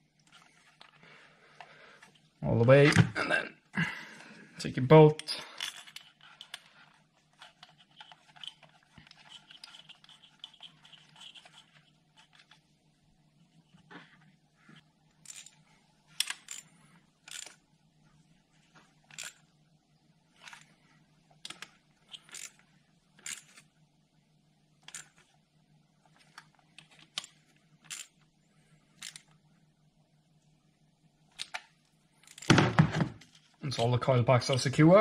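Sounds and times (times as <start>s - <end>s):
socket ratchet clicking: 17.3s - 17.6s, 21.5s - 22.6s.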